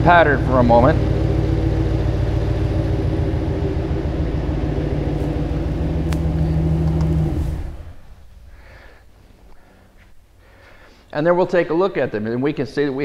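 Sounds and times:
engine idling: 0.0 - 10.6.

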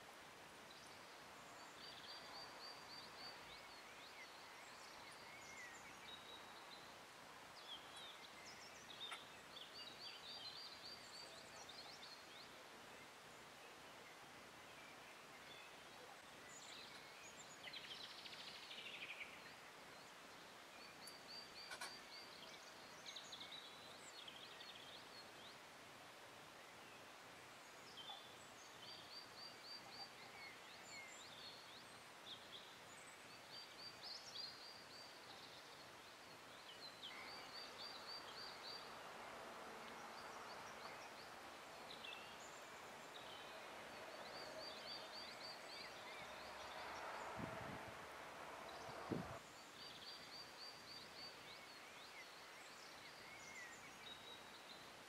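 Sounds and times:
bird chirps: 7.6 - 25.6, 26.6 - 39.1.

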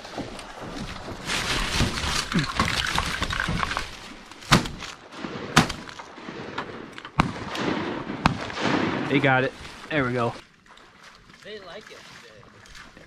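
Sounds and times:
shotgun shots: 4.5 - 9.5.

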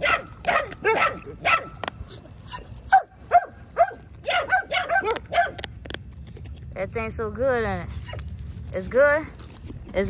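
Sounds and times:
dog whining in high yelps: 0.0 - 5.7.

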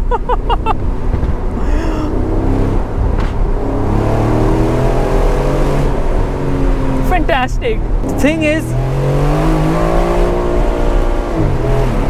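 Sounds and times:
car engine revving: 0.0 - 12.0
exhaust pop: 1.0 - 1.7, 2.9 - 3.6.

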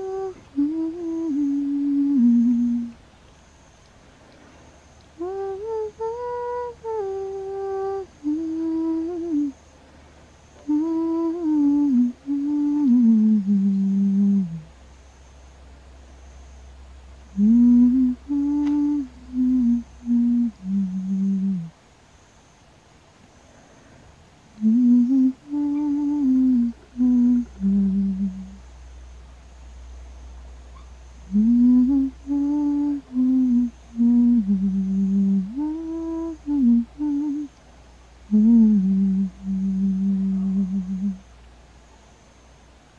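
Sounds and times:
person humming a lullaby: 0.0 - 3.0, 5.2 - 9.6, 10.6 - 14.7, 17.3 - 21.8, 24.6 - 28.6, 31.3 - 37.5, 38.3 - 41.3.

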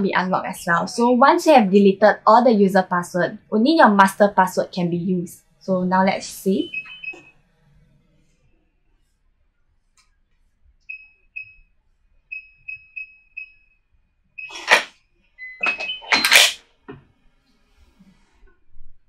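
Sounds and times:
keypad beeps: 6.6 - 7.3, 14.4 - 16.6
door lock confirmation tone: 14.4 - 16.6
lock mechanical clunks: 14.5 - 14.9, 15.6 - 16.6.

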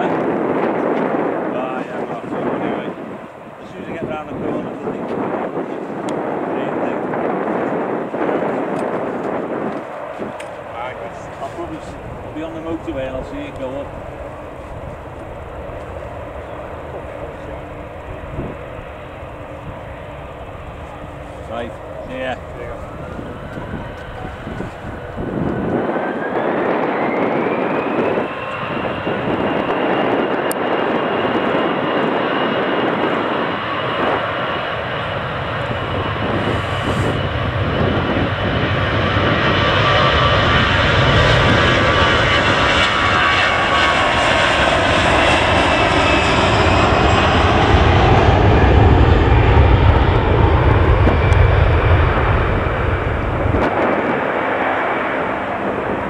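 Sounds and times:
deep rumble: 0.0 - 56.0
jet engine whine: 0.0 - 56.0
dense rushing noise: 35.6 - 38.2.

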